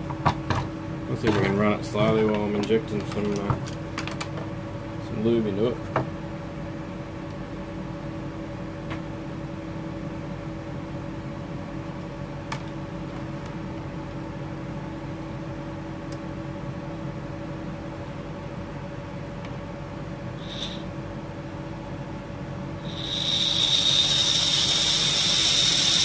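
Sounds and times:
small motor humming: 20.4s - 20.9s, 22.7s - 26.0s.

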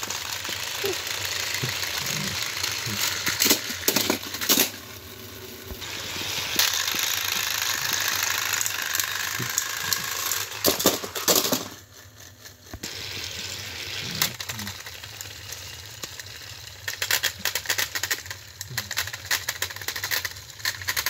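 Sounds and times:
toy gears clattering: 0.0s - 21.0s
toy train motors whirring: 0.0s - 21.0s
sharp plastic clacks: 2.8s - 4.8s, 16.9s - 21.0s.

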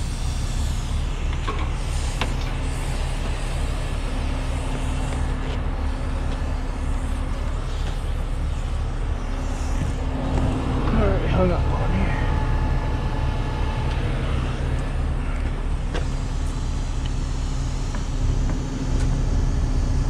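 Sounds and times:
truck engine idling: 0.0s - 20.0s.

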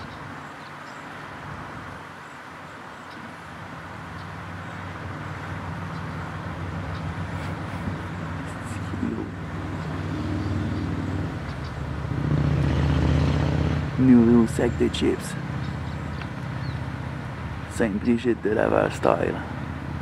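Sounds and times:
vehicle engine humming: 0.0s - 20.0s.

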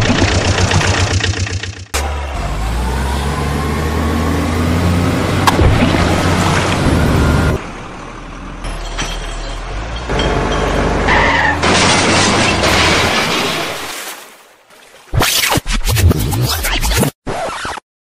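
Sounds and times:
truck engine low hum: 0.0s - 12.7s.

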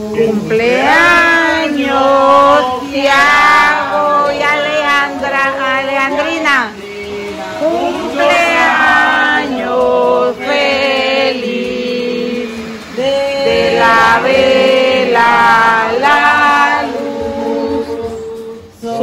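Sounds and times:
group singing held notes: 0.0s - 19.0s.

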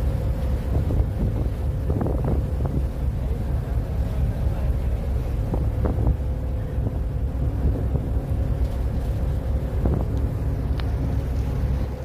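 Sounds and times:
ferry engines rumbling: 0.0s - 12.0s
wind buffeting microphone: 0.0s - 12.0s.

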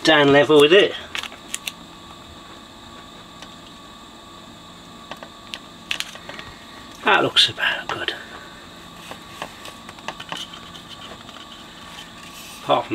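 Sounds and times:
steady background hum: 0.0s - 12.9s.

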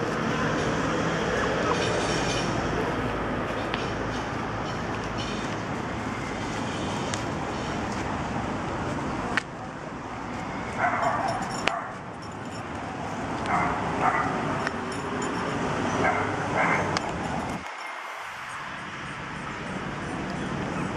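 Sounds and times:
puppies yipping: 10.8s - 12.0s, 20.3s - 20.9s.

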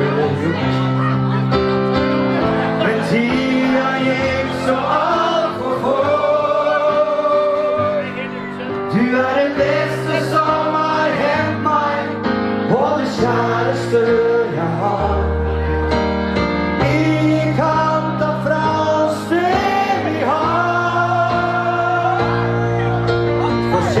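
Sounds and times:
man singing ballad: 0.0s - 0.9s, 2.8s - 15.8s, 16.7s - 24.0s
keyboard accompaniment: 0.0s - 24.0s.

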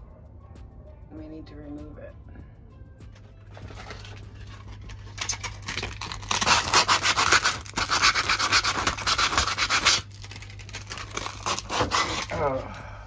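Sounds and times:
sandpaper rubbing on wood: 6.3s - 10.0s, 11.3s - 12.3s.

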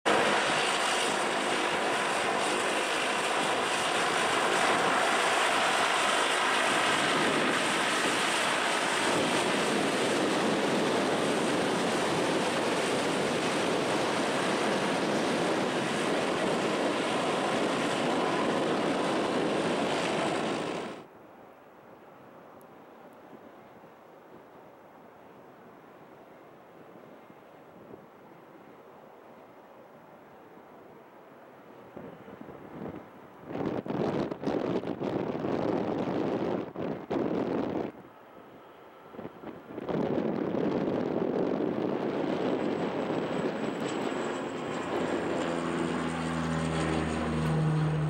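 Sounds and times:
turboprop engines running: 0.1s - 21.1s, 37.7s - 48.0s
faint wind noise: 0.1s - 48.0s.

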